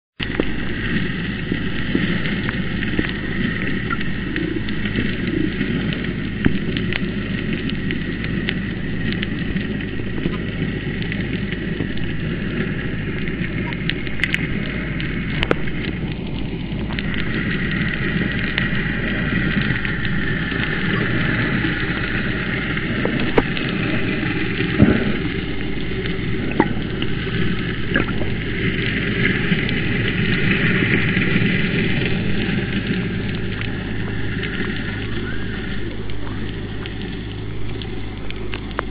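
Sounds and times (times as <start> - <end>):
muffled underwater rumble and hiss: 0.2 - 38.9
sharp underwater clicks: 24.8 - 28.5, 35.9 - 38.9.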